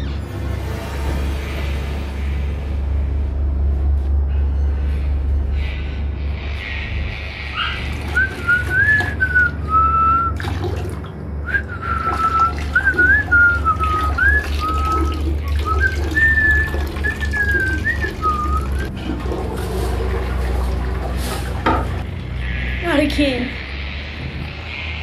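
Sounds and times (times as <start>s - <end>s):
steady low hum: 0.0s - 25.0s
person whistling a tune: 11.5s - 18.9s.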